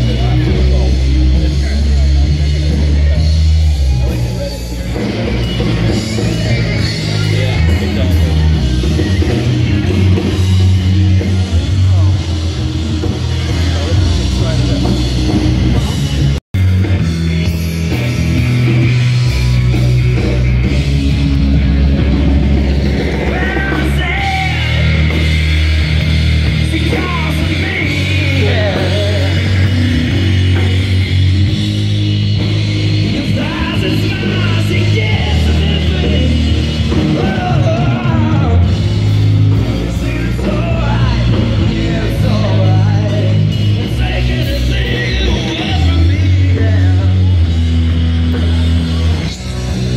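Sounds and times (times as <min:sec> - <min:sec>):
heavy bass line: 0:00.0 - 0:49.9
live rock band playing: 0:00.0 - 0:49.9
lead singer singing: 0:22.8 - 0:31.2, 0:32.8 - 0:47.6.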